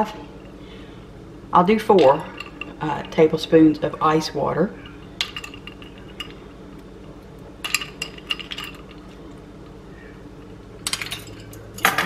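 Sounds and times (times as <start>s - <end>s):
steady low hum: 0.0s - 12.0s
metal spoons clinking: 1.9s - 3.5s, 4.8s - 6.4s, 7.6s - 9.1s, 10.8s - 12.0s.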